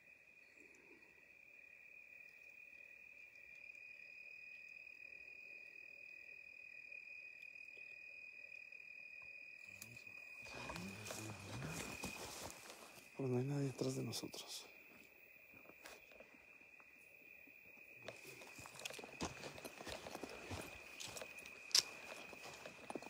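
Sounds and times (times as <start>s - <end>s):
crickets trilling: 0.0s - 23.0s
rustling on dry ground: 10.4s - 13.3s, 18.0s - 23.0s.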